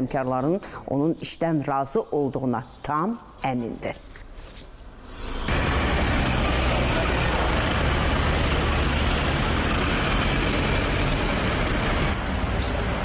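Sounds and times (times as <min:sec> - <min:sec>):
street traffic: 0:00.0 - 0:13.0
car engine running: 0:05.5 - 0:12.2.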